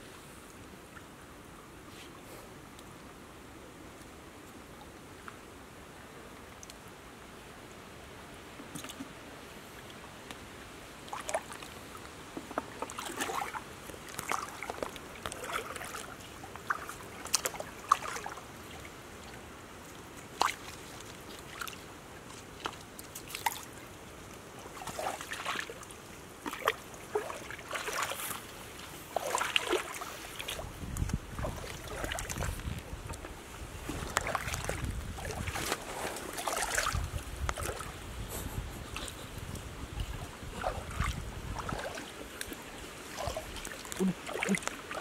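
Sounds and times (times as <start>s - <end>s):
stick splashing in stream: 11.1s - 11.8s, 12.4s - 18.9s, 20.2s - 21.8s, 22.4s - 23.8s, 24.7s - 38.0s, 39.0s - 45.0s.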